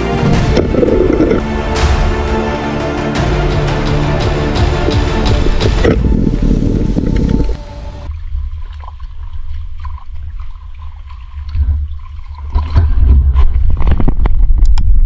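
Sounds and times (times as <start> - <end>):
water sloshing and gurgling: 0.0 - 15.0
water splashing: 4.6 - 14.6.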